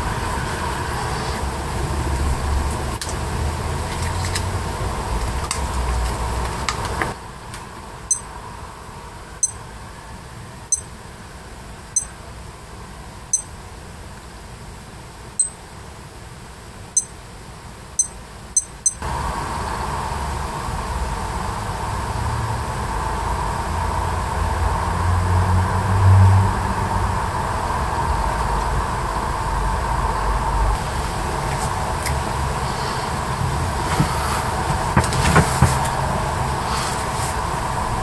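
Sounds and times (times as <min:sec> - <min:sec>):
background noise with low hum: 0:00.0 - 0:38.0
digital watch beeping: 0:18.0 - 0:19.0.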